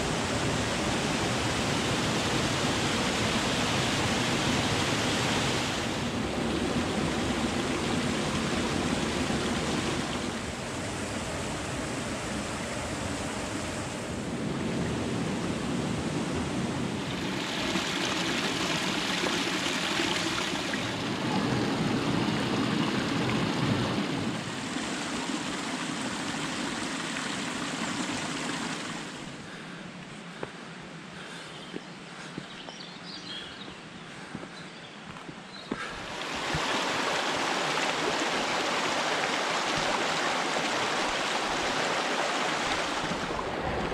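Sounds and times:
water splashing down rock steps: 17.2 - 21.1, 36.0 - 43.9
waterfall pouring into pool: 17.2 - 29.2, 36.1 - 43.9.

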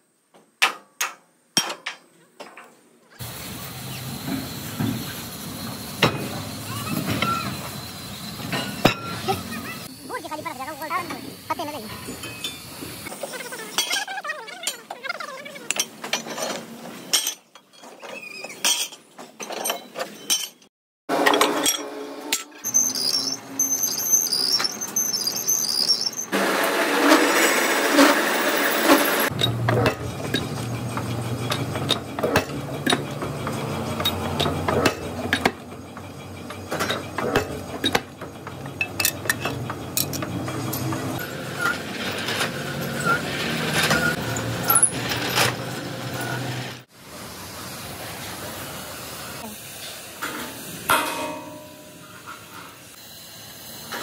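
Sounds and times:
machine tool squealing and grinding: 3.9 - 10.0, 21.6 - 46.9
hammer strikes on steel plate: 50.9 - 52.1.

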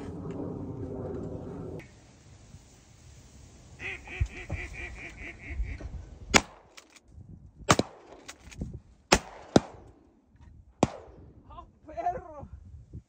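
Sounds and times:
duck quacks: 3.8 - 5.9
shotgun blasts: 6.3 - 6.7, 7.7 - 8.3, 9.1 - 10.0, 10.8 - 11.3.

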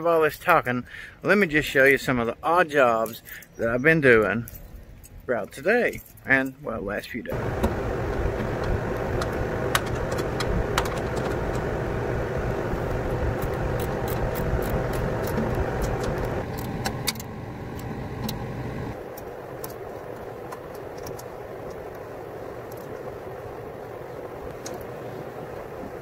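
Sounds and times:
machinery rumble: 7.2 - 26.0.

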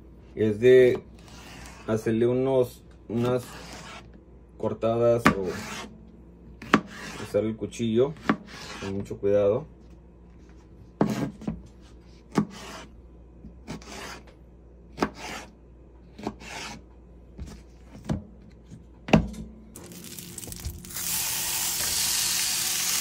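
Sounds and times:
knife cutting on cutting board: 3.2 - 4.1, 5.3 - 5.9, 6.6 - 7.4, 8.1 - 9.0, 11.0 - 11.5, 12.3 - 13.0, 13.6 - 14.3, 15.0 - 15.5, 16.1 - 16.8
oil sizzling in frying pan: 19.8 - 23.0.

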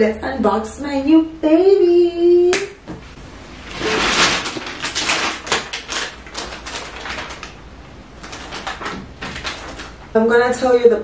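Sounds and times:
packaging crinkling: 3.6 - 10.2.

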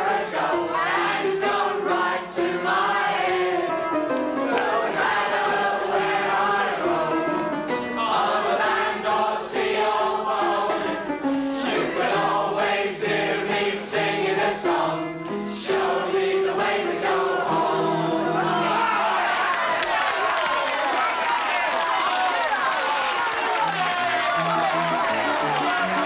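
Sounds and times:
upright piano: 0.0 - 19.2, 21.6 - 26.0
mixed chorus singing: 0.0 - 20.5.

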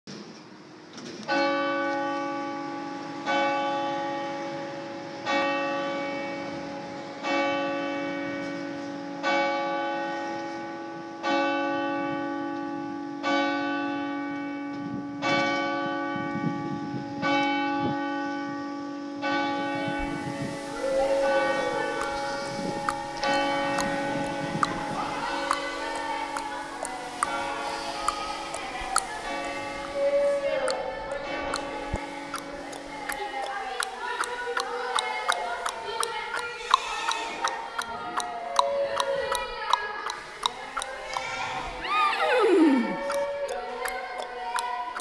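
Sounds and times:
church bell tolling slowly: 1.3 - 32.6.

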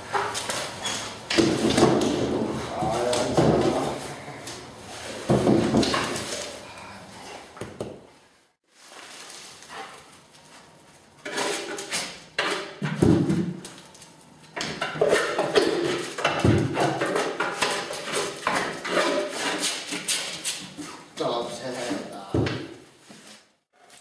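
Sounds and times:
knocks and scrapes on wood: 5.0 - 6.4, 14.6 - 21.0.

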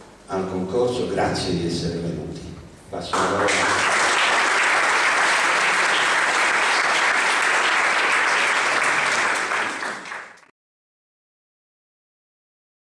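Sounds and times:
audience applauding: 3.2 - 10.5.

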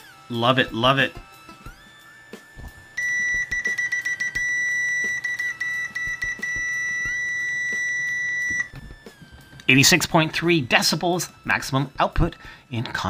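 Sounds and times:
multimeter continuity beep: 3.0 - 8.7.

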